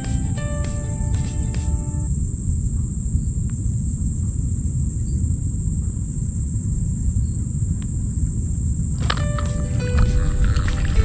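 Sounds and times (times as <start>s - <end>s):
wind on microphone: 3.4s - 11.0s.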